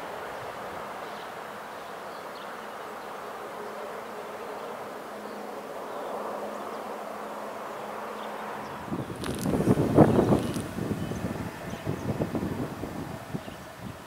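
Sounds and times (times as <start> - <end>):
outdoor background noise: 0.0 - 14.0.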